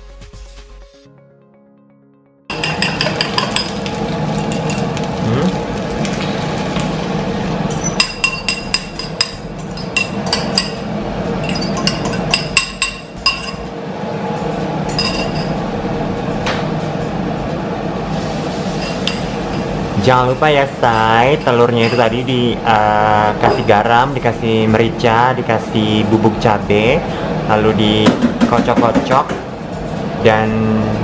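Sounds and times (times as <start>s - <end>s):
steady background noise: 2.5s - 31.0s
fork clinking against ceramic bowl: 11.4s - 13.6s.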